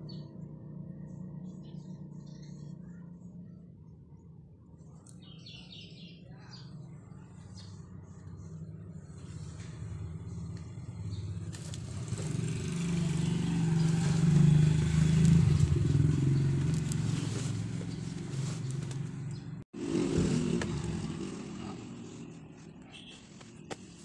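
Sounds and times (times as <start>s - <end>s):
vehicle engine passing by: 6.8s - 23.3s
denim cloth rustling: 11.5s - 19.4s, 21.8s - 24.0s.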